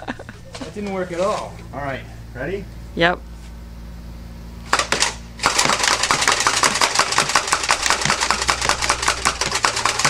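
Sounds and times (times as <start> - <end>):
toy blaster firing clacks: 4.7 - 10.0.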